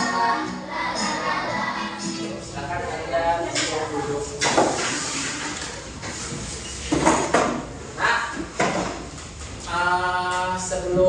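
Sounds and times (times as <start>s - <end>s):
knocks and scrapes: 3.5s - 7.6s.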